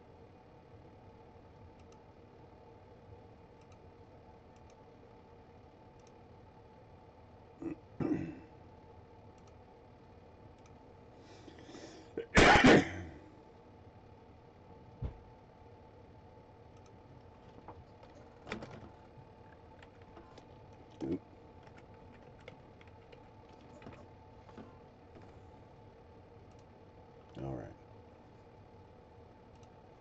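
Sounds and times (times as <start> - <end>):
man clearing his throat: 7.6 - 8.5, 12.1 - 13.2.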